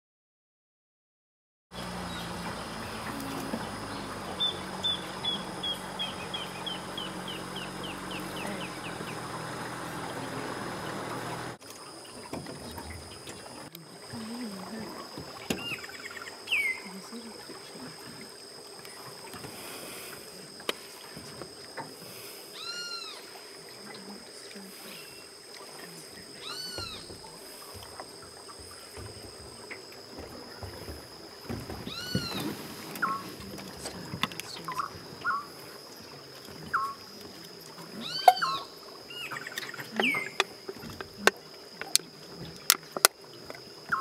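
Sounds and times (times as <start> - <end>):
boat motor idling: 1.7 - 44.0
insect-like hum: 1.7 - 44.0
bird song quickening notes: 1.8 - 9.5
brief bird calls: 22.6 - 23.3, 26.4 - 27.1, 31.9 - 33.3, 38.0 - 40.4.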